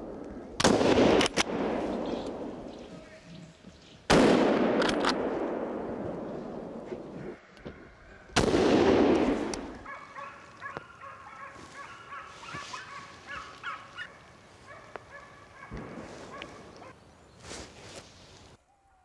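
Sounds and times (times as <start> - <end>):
rifle shot echoing: 0.1 - 2.8, 4.1 - 7.4, 8.4 - 9.9
distant dogs baying: 9.8 - 17.0.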